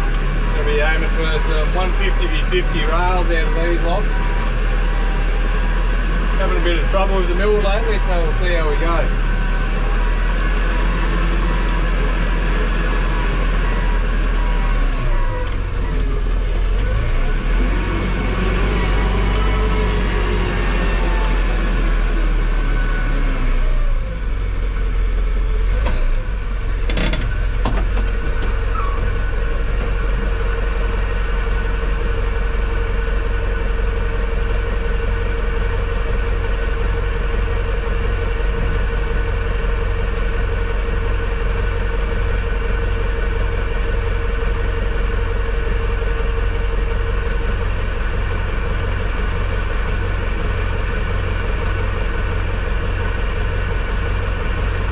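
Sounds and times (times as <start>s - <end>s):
steady whine: 0.0s - 25.2s
tractor engine running: 0.0s - 54.9s.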